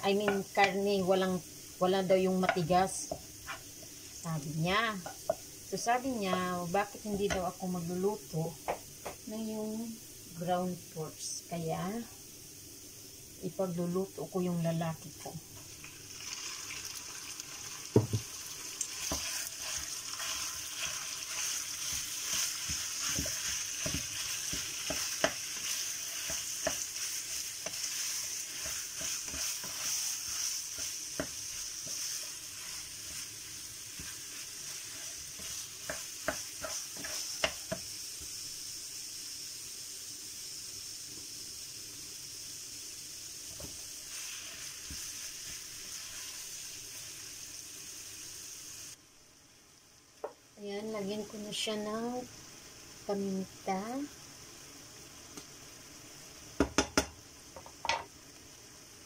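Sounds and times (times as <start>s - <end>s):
meat sizzling in a frying pan: 0.0s - 59.0s
spatula knocking and scraping pan: 0.1s - 0.8s, 2.3s - 3.9s, 6.2s - 7.6s, 19.0s - 37.9s.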